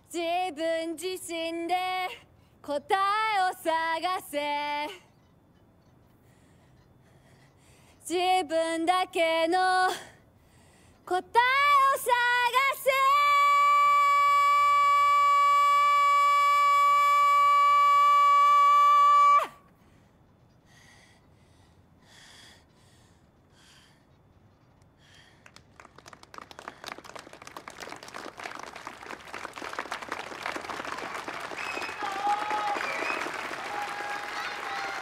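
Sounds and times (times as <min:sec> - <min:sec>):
crowd applause and cheering: 0:25.5 - 0:35.0
crowd shouts: 0:31.7 - 0:35.0.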